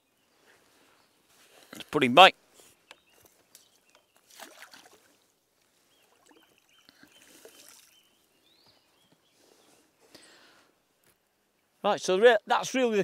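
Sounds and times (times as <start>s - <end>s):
fish splashing into water: 4.2s - 5.2s
faint high chirps: 6.0s - 9.2s.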